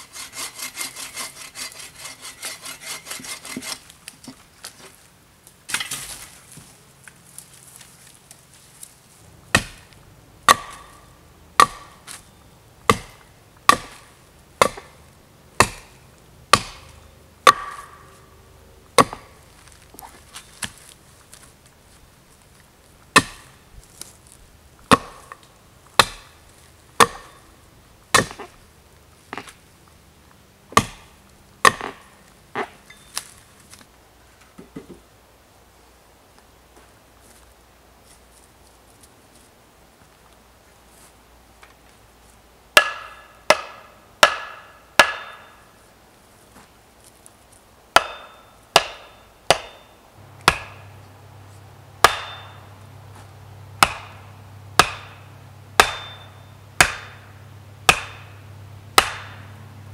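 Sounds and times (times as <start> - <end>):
hatchet chopping wood: 9.5 - 11.0, 11.6 - 12.2, 12.9 - 15.0, 15.6 - 18.1, 19.0 - 19.4, 23.1 - 23.6, 24.9 - 25.4, 26.0 - 26.4, 27.0 - 27.4, 28.1 - 28.5, 30.7 - 32.1, 42.8 - 45.6, 47.9 - 50.9, 52.0 - 52.6, 53.8 - 57.3, 57.9 - 58.4, 59.0 - 59.5.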